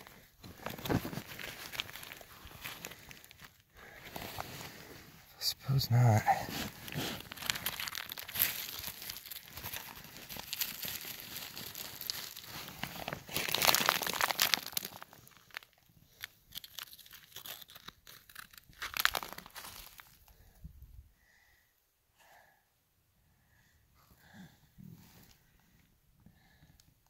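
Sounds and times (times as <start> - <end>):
crinkling crunching rustle: 0.0 - 5.0, 5.6 - 20.5.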